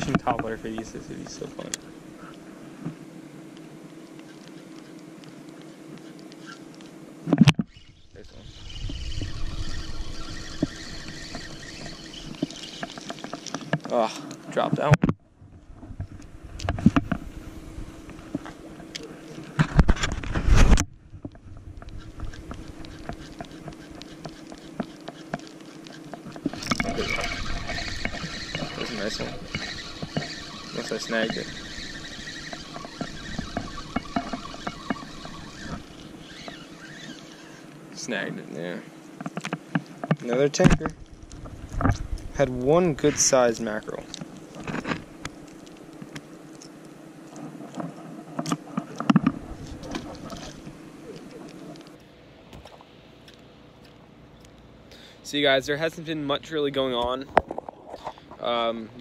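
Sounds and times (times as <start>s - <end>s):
faint steady hum: 0.0s - 59.0s
fish flopping: 3.5s - 14.4s, 18.0s - 37.8s.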